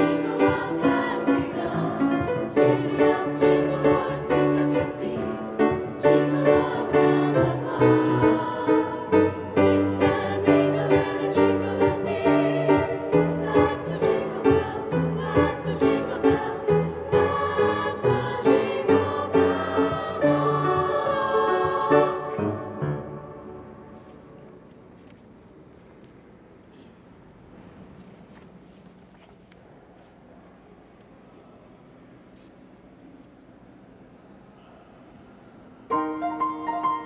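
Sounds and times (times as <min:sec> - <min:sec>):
piano accompaniment: 0:00.0 - 0:24.0, 0:35.9 - 0:37.0
choir singing: 0:00.0 - 0:24.1.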